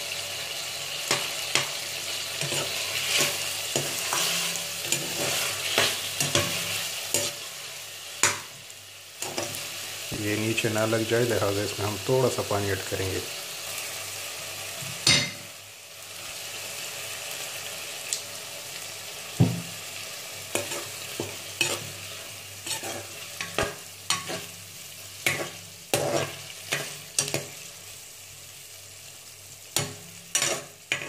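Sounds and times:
curry sizzling in a pan: 0:00.0 - 0:31.0
metal spoon scraping a pan: 0:01.1 - 0:07.5, 0:20.5 - 0:24.6, 0:25.2 - 0:27.7, 0:29.8 - 0:31.0.

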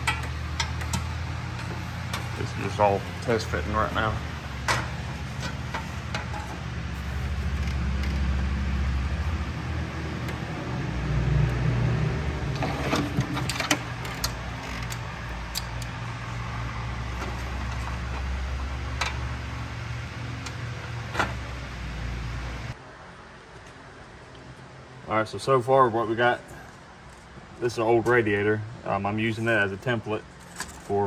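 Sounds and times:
metal fan shroud clicks and knocks: 0:00.0 - 0:02.4, 0:04.6 - 0:06.6.

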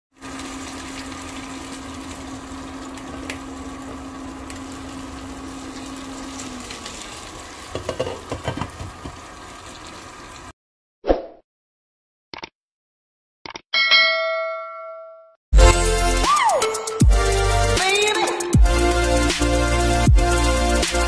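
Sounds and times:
soup bubbling in pot: 0:00.2 - 0:10.5
ladle scraping metal pot: 0:07.8 - 0:08.8.

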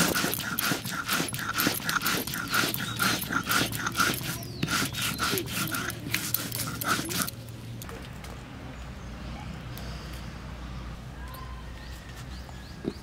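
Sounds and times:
stone roller scraping grinding stone: 0:00.0 - 0:07.4.

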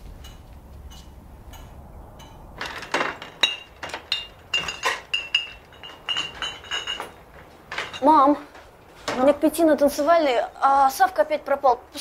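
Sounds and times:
glass bottles clinking: 0:00.2 - 0:08.4.

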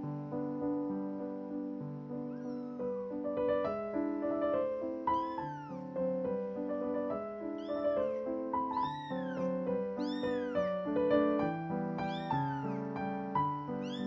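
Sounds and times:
piano music: 0:00.0 - 0:14.0
kitten meowing: 0:02.2 - 0:03.9, 0:04.8 - 0:06.3, 0:07.1 - 0:14.0.

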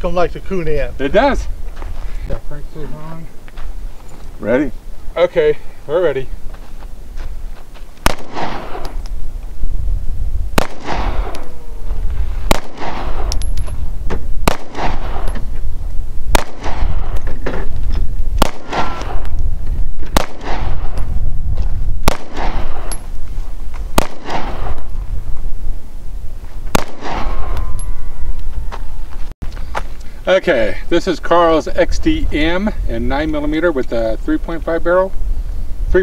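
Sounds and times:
pistol shots with echo: 0:08.0 - 0:09.0, 0:10.6 - 0:11.6, 0:12.5 - 0:13.5, 0:14.4 - 0:15.4, 0:16.3 - 0:17.3, 0:18.4 - 0:19.3, 0:20.1 - 0:21.1, 0:22.0 - 0:23.0, 0:24.0 - 0:24.9, 0:26.7 - 0:27.8.

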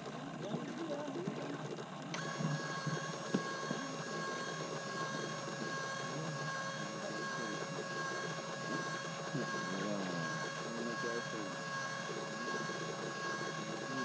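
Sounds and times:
electric motor whine: 0:00.0 - 0:14.0.

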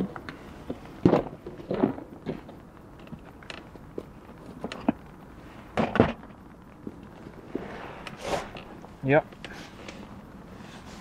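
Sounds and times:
rustling: 0:00.4 - 0:11.0.

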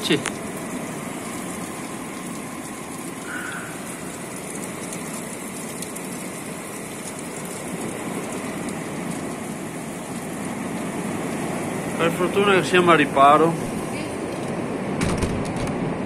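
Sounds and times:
heavy rain on forest: 0:00.0 - 0:16.0.

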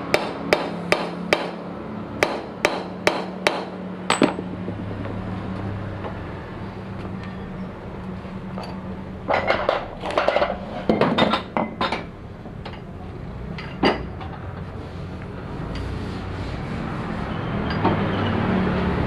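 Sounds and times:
steady low hum: 0:00.0 - 0:11.0
metal tools clinking: 0:04.1 - 0:04.5, 0:13.6 - 0:14.4.

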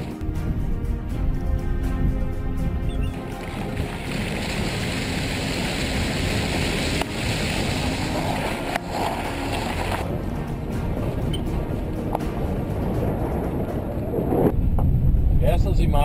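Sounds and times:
background music: 0:00.0 - 0:15.3
wind and road noise: 0:00.0 - 0:16.0
car tyres splashing through water: 0:03.2 - 0:10.1
tyres rolling on dirt road: 0:03.5 - 0:10.7.

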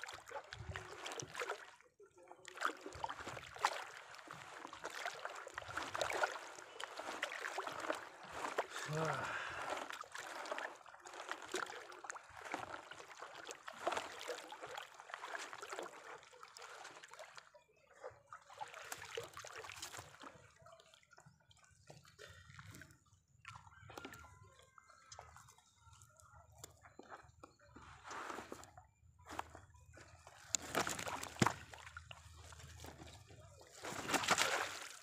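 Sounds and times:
water dripping and splashing: 0:00.0 - 0:01.8, 0:02.4 - 0:17.5, 0:18.4 - 0:20.4, 0:30.3 - 0:35.0
wet net hauled over boat side: 0:00.0 - 0:35.0.

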